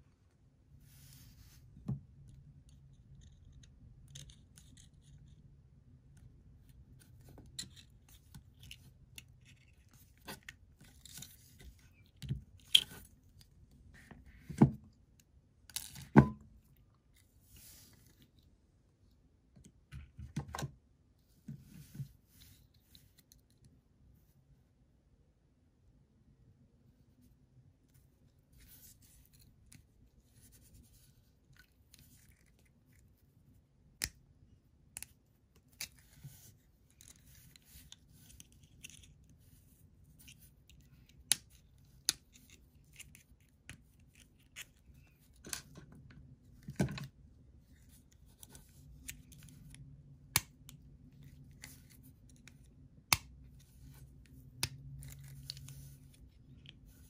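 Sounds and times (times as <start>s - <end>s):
faint scratching and handling: 0.6s - 5.6s, 6.2s - 15.1s, 16.6s - 19.2s, 21.2s - 24.6s, 26.8s - 34.0s, 35.0s - 50.0s, 50.7s - 57.0s.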